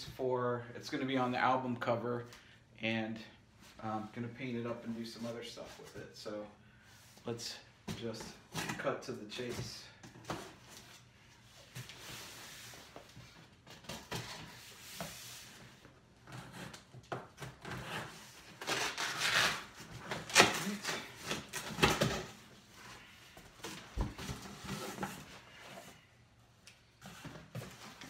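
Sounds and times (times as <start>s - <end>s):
blade slitting packing tape: 18.6s - 19.7s.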